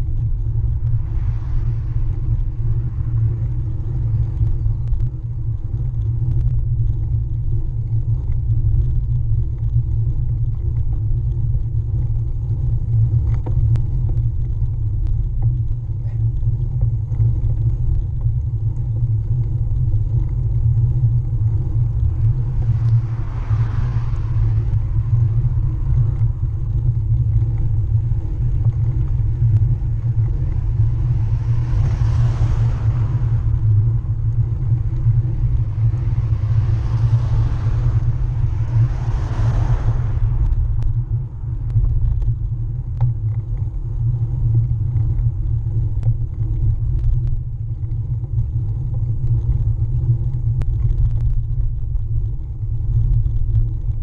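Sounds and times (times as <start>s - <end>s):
bike tyre rolling on tarmac: 0.0s - 54.0s
wind buffeting microphone: 0.0s - 54.0s
cars swishing past: 31.2s - 34.2s, 35.6s - 40.9s.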